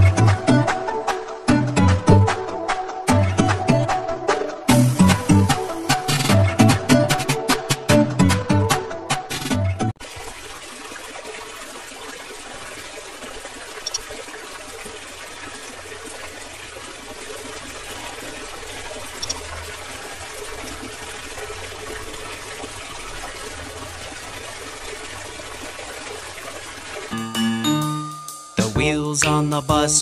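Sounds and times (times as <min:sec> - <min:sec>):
water gushing from pipe: 0:10.0 - 0:27.1.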